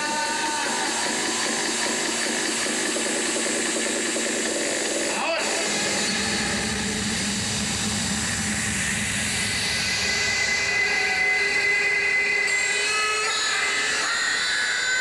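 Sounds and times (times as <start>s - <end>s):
jet-engine-like rushing effect: 2.0s - 11.3s.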